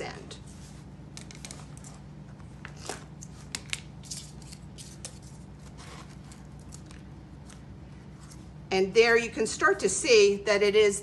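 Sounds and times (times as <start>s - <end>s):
paper and cardboard rustling: 0.5s - 7.0s
scissors snipping paper: 3.6s - 5.4s.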